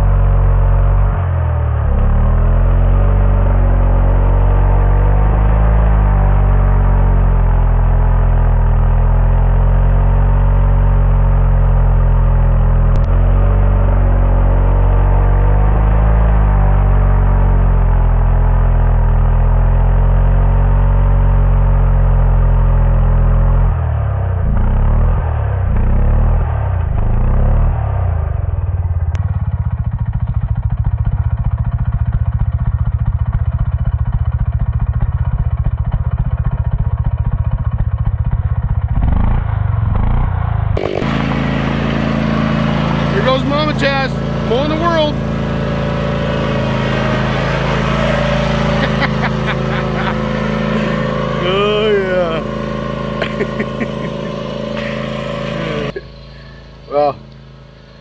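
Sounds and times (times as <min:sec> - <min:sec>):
chainsaw cutting stump: 0:40.8 - 0:45.4, 0:46.4 - 0:56.6.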